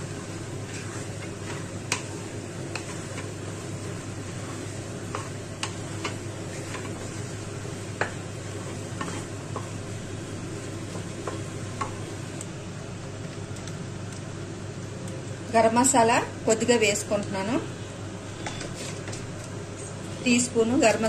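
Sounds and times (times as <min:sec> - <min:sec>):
spatula scraping nonstick pan: 0:00.5 - 0:07.4, 0:08.4 - 0:09.4
spatula tapping pan: 0:00.7 - 0:07.2, 0:07.9 - 0:09.8, 0:10.9 - 0:12.0.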